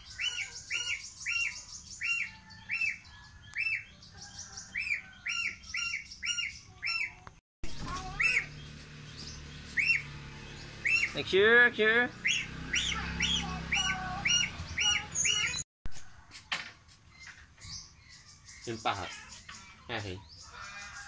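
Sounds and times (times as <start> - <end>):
young goose peeping: 0.0 - 7.3, 7.9 - 8.8, 9.6 - 10.2, 10.8 - 11.4, 12.2 - 15.6.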